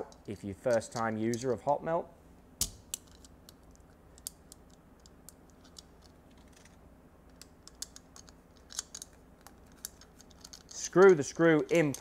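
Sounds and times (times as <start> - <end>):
small metal parts clicking: 2.6 - 12.0.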